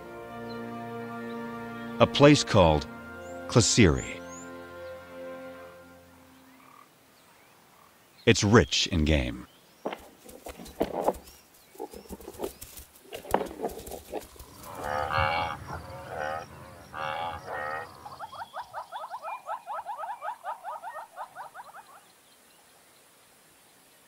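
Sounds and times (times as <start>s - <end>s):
grass being cropped: 9.8s - 16.4s
buffalo lowing: 11.8s - 19.4s
rapid trill of rising chirps: 14.2s - 19.9s.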